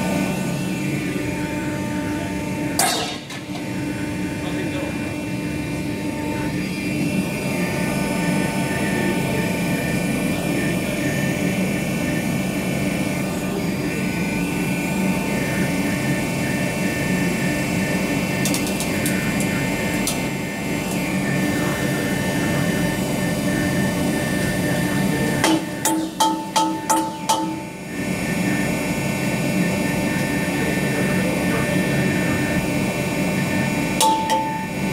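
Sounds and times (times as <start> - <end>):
machine hum: 0.0 - 34.9
sharp metallic knocks: 25.4 - 27.6, 34.0 - 34.6.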